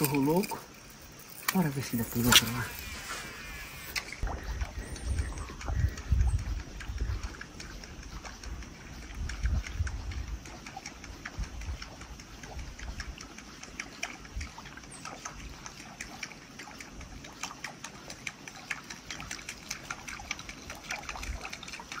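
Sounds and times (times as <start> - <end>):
water splashing and trickling: 0.0 - 22.0.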